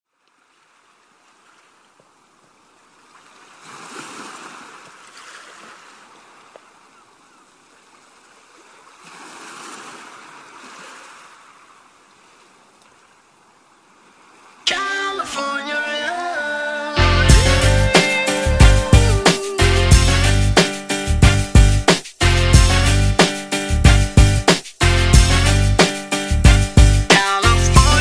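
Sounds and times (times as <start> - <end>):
ocean waves washing in: 0.4 - 6.5, 8.0 - 21.2
music: 14.7 - 28.0.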